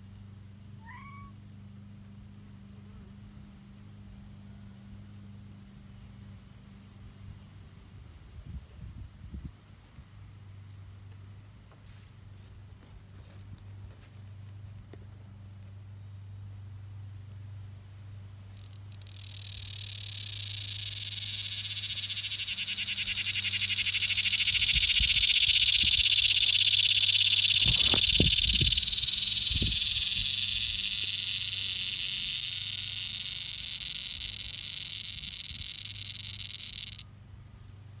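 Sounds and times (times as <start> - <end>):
cicada buzzing drone: 18.6 - 37.0.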